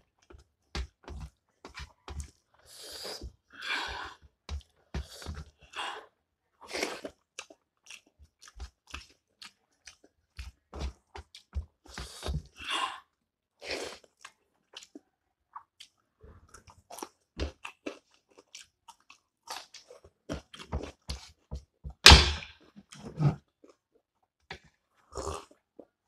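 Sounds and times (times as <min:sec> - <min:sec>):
person chewing and crunching: 0:06.6 - 0:12.6, 0:13.6 - 0:21.5.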